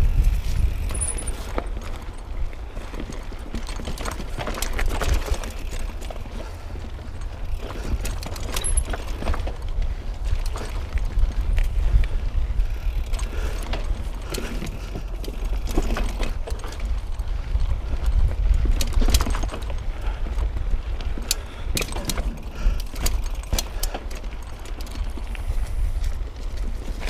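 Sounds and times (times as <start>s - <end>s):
low rumble of riding: 0.0s - 27.0s
mountain bike rattling over rocks: 0.0s - 27.0s.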